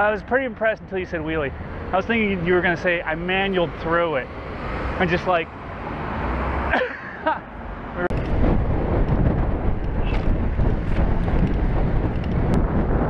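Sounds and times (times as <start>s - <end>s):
wind buffeting microphone: 8.1s - 13.0s.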